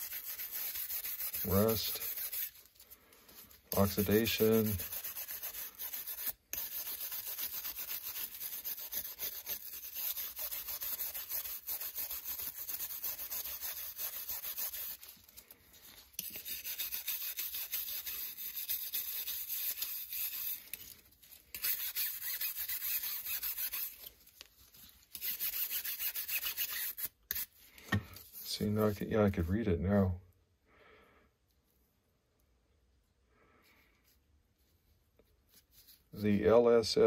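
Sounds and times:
wire brush scratching on metal: 0:00.0 - 0:02.7, 0:03.7 - 0:15.3, 0:16.1 - 0:24.1.

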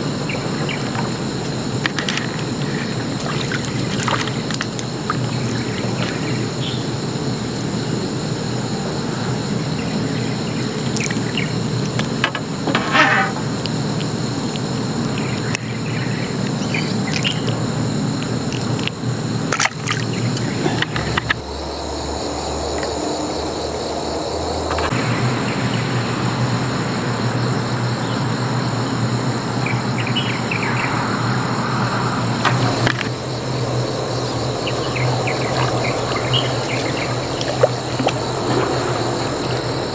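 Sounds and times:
insects singing: 0:00.0 - 0:39.9.

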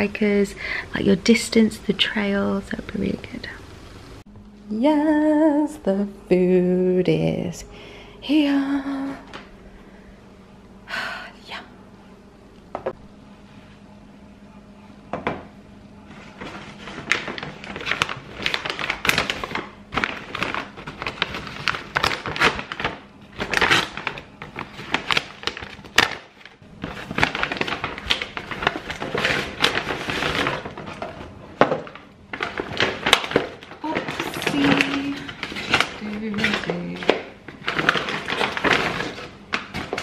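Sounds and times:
paper bag rustling: 0:16.1 - 0:40.0.

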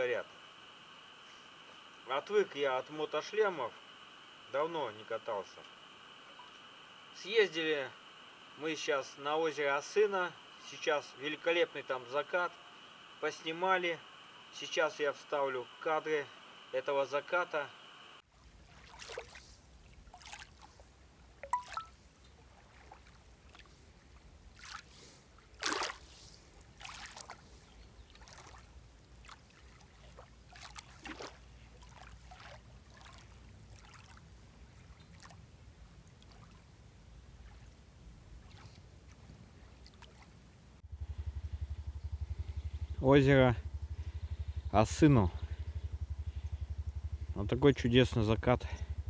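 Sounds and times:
waves lapping on shore: 0:00.0 - 0:36.7
low steady rumble: 0:26.3 - 0:49.0.

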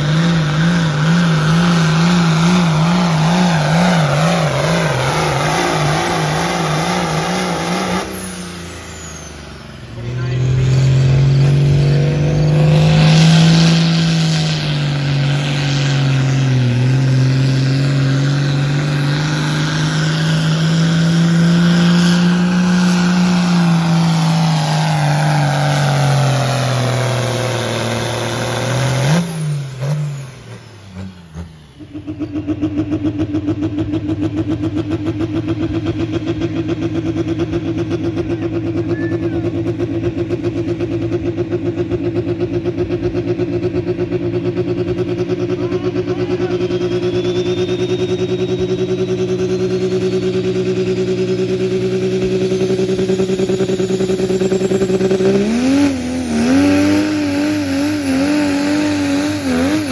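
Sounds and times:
tractor engine running flat out: 0:00.0 - 0:59.9
engine idling with fast pulse: 0:30.3 - 0:56.4.

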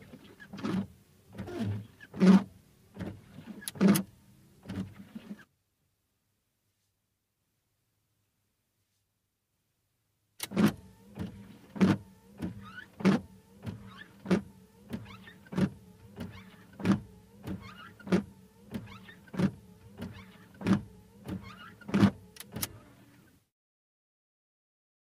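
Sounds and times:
wiper motor humming: 0:00.0 - 0:05.4, 0:10.4 - 0:23.3
wiper blades squeaking: 0:00.0 - 0:05.5, 0:10.4 - 0:23.3.

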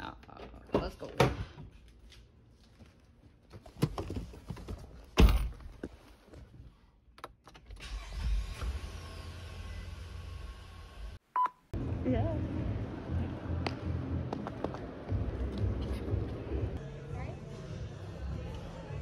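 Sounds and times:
car engine starting and idling: 0:07.6 - 0:11.1.

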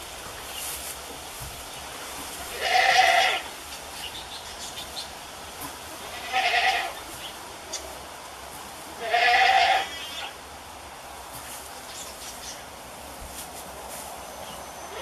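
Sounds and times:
goat bleating: 0:02.5 - 0:03.5, 0:06.0 - 0:07.0, 0:09.0 - 0:10.4.

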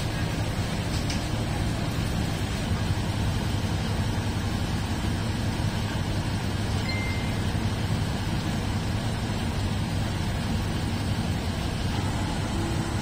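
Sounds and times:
diesel train engine hum: 0:00.0 - 0:13.0
faint high tone: 0:06.8 - 0:07.5.

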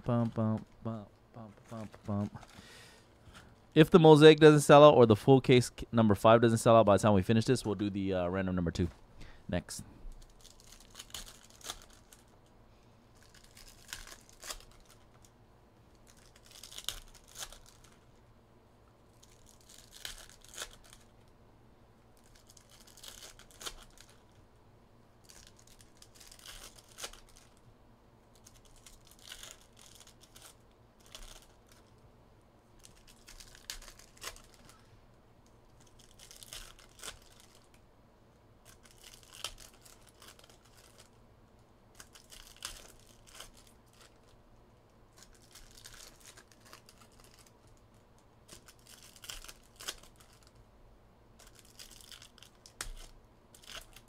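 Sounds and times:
faint steady hum: 0:00.0 - 0:54.0
foil wrappers tearing and crinkling: 0:10.2 - 0:12.4, 0:13.1 - 0:15.3, 0:15.9 - 0:18.1, 0:19.1 - 0:21.2, 0:22.2 - 0:24.4, 0:25.2 - 0:27.6, 0:28.3 - 0:31.9, 0:32.8 - 0:34.8, 0:35.8 - 0:37.8, 0:38.6 - 0:41.2, 0:41.9 - 0:44.4, 0:45.1 - 0:50.6, 0:51.4 - 0:54.0.

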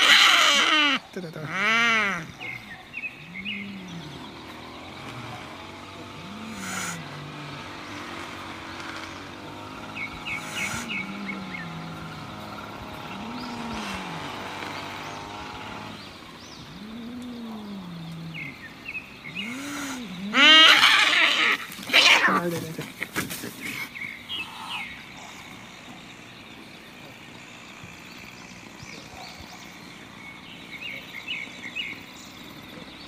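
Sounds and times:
cat screeching: 0:00.0 - 0:01.0, 0:20.3 - 0:22.4
birds chirping: 0:00.0 - 0:33.0
cats growling yowls: 0:16.7 - 0:18.6, 0:19.4 - 0:22.6.

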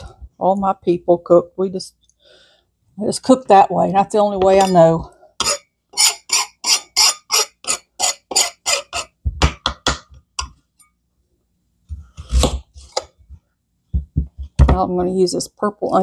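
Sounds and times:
knife scraping onion skin: 0:05.4 - 0:09.2, 0:12.1 - 0:13.0.

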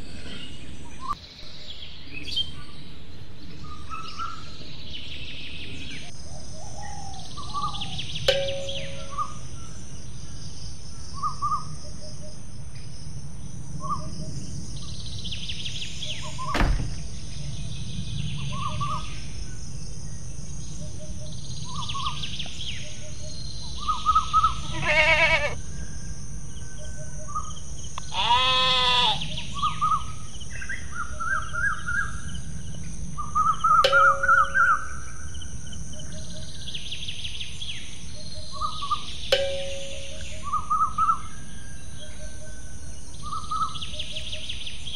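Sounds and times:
birds chirping: 0:00.0 - 0:44.9
steady low rumble: 0:07.2 - 0:24.8, 0:29.2 - 0:40.6
sharp knock: 0:16.5 - 0:17.1
goat bleating: 0:24.6 - 0:25.6, 0:28.1 - 0:29.2.

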